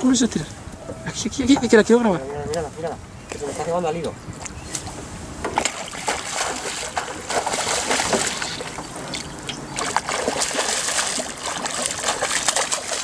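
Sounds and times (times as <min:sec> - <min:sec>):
fish splashing at water surface: 0:05.6 - 0:13.0.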